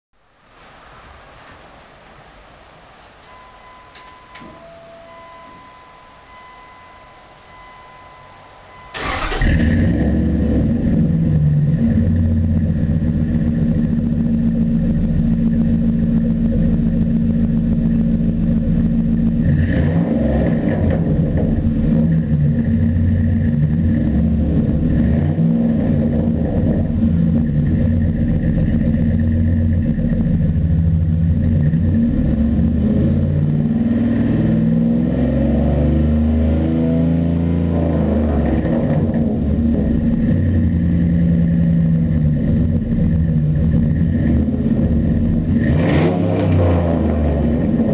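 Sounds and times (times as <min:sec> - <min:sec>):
faint steady tones: 0:01.8 - 0:09.4
car engine starting and idling: 0:03.3 - 0:47.9.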